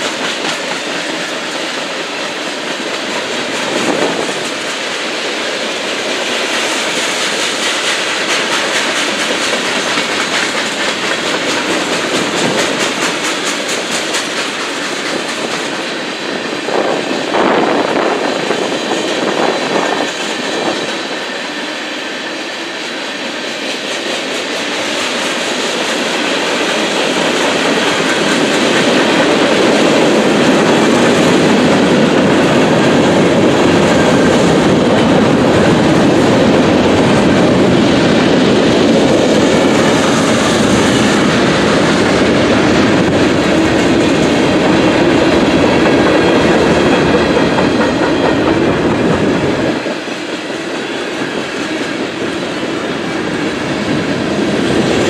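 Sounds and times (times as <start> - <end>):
wheel clatter over rails: 0.0 - 17.0
freight train rumbling past: 0.0 - 55.0.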